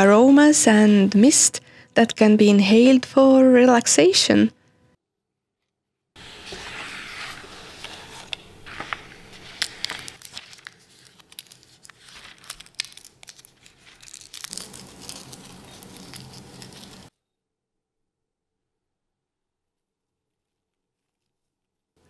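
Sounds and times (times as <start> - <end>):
dried leaves crackling: 6.3 - 17.1.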